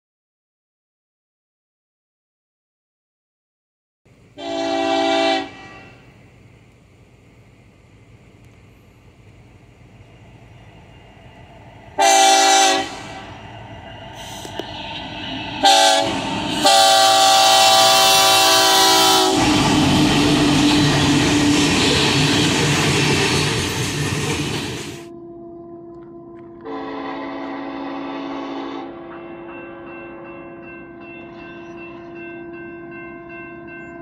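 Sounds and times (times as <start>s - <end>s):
train rumbling past: 4.1s - 34.0s
locomotive air horn: 4.4s - 6.1s, 12.0s - 13.4s, 15.6s - 21.0s, 25.0s - 29.9s
distant train horn: 4.4s - 6.2s, 11.9s - 22.3s, 24.8s - 34.0s.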